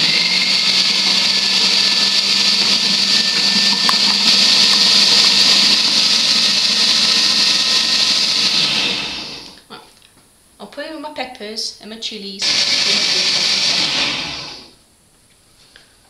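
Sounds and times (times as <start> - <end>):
food processor chopping: 0.0 - 9.6, 12.4 - 14.6.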